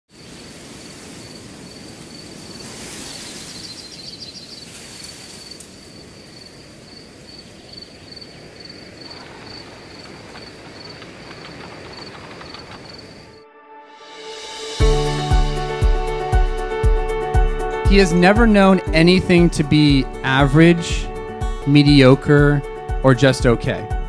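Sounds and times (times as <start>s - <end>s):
pulsing insect trill: 0.2s - 13.4s
rapid chirps: 7.7s - 13.4s.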